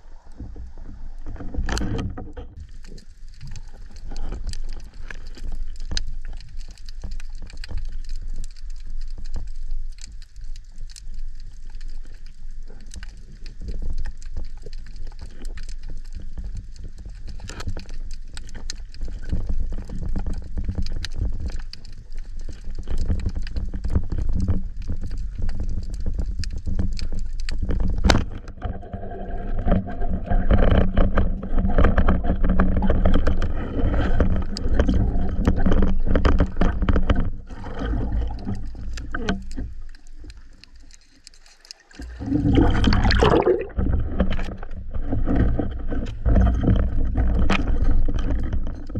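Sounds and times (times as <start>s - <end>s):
muffled underwater movement: 0.0s - 48.9s
clicks underwater: 0.3s - 48.9s
churning water: 28.1s - 40.4s, 41.7s - 48.9s.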